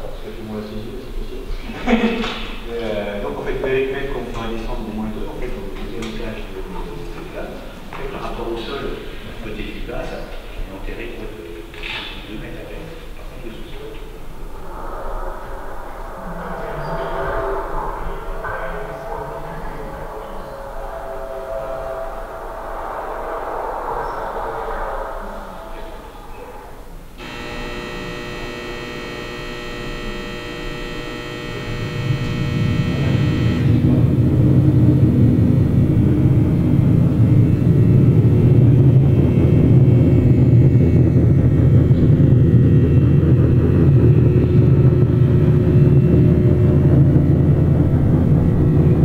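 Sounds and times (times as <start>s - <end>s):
low rumbling hum: 27.1s - 49.0s
sustained high tones: 27.2s - 34.0s.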